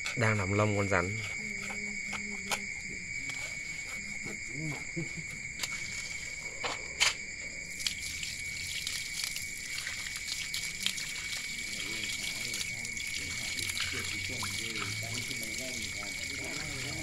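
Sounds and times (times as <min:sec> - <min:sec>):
crickets chirping: 0:00.0 - 0:17.0
tap water pouring and splashing: 0:05.5 - 0:06.3, 0:07.7 - 0:17.0.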